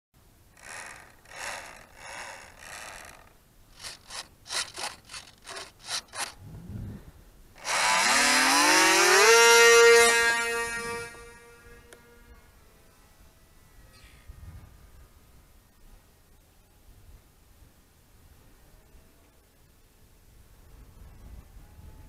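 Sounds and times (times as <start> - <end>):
electric model plane motor whine: 0.6 - 6.4, 7.6 - 13.9
short scraping or rustling: 0.6 - 7.0.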